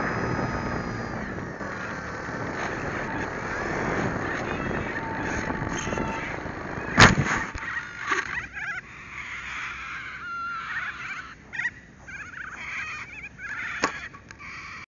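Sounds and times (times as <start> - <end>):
grass rustling: 0.0 - 8.7
birds calling: 0.0 - 14.9
model plane thumping down in grass: 6.8 - 7.6.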